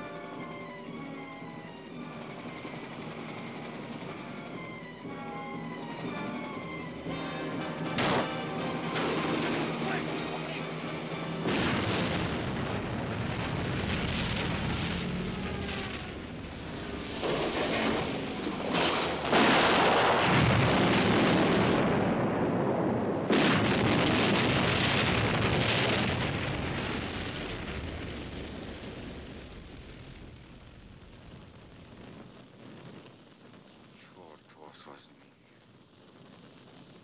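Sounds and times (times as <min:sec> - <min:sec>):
fire burning: 0:00.0 - 0:37.0
explosions: 0:07.1 - 0:34.2.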